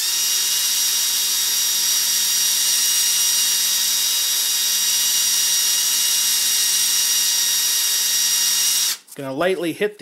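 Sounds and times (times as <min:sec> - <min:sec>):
electric drill whining: 0:00.0 - 0:09.1.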